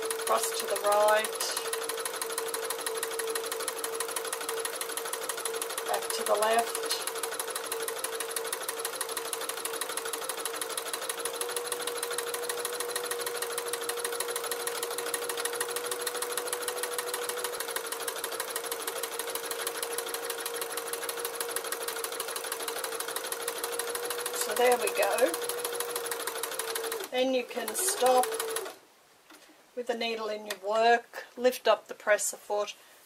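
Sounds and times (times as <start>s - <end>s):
sewing machine stitching: 0.0s - 28.8s.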